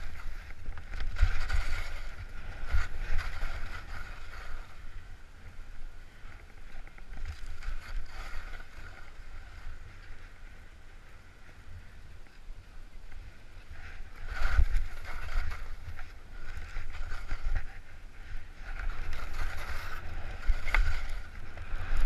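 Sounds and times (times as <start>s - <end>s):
skis hissing over snow: 13.4s - 22.0s.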